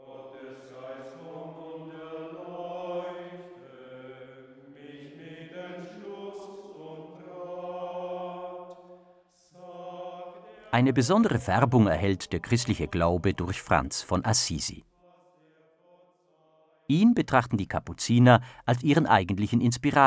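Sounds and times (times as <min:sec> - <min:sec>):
men singing a slow chant: 0:00.0 - 0:13.6.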